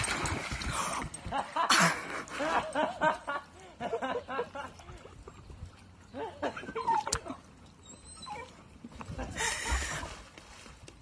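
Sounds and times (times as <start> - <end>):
water splashing: 0.0 - 2.9
dog whining: 6.6 - 8.7.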